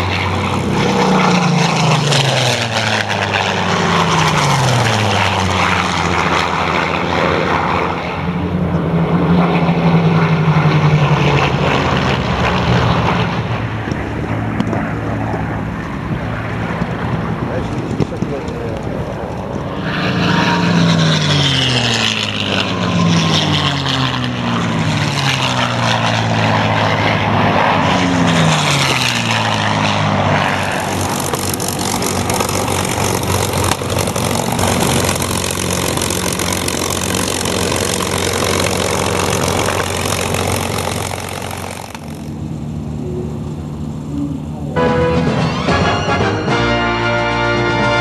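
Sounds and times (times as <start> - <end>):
propeller aircraft passing low: 0.0 - 48.0.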